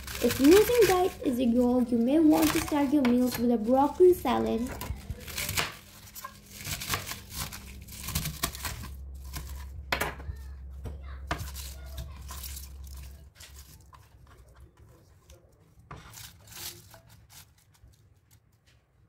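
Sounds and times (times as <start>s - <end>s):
knife cutting cabbage: 0.0s - 9.8s, 11.3s - 14.5s, 15.7s - 18.0s
steady low hum: 0.0s - 16.0s.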